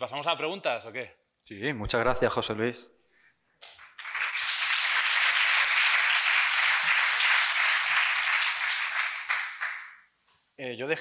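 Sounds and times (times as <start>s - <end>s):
audience applauding: 3.8s - 10.0s.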